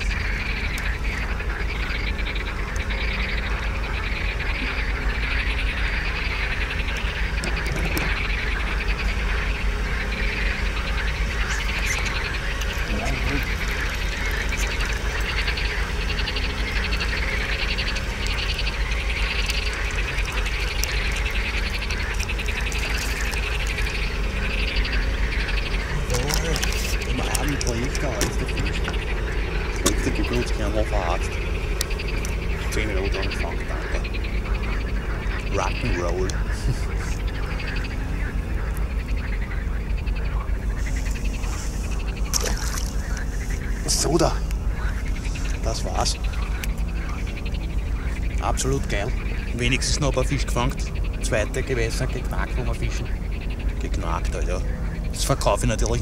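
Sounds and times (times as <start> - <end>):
frogs croaking: 0.0 - 56.0
low steady rumble: 0.0 - 56.0
small animals trilling: 0.0 - 56.0
fish splashing at surface: 18.1 - 24.2, 42.3 - 43.4.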